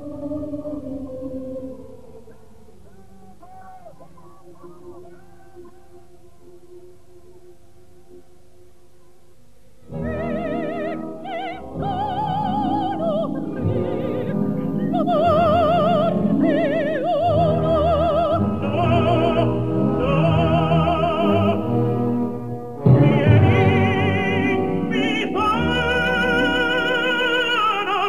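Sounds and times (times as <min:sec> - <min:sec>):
classical accompaniment: 0:09.9 - 0:28.0
operatic voice singing: 0:10.0 - 0:21.8, 0:22.8 - 0:28.0.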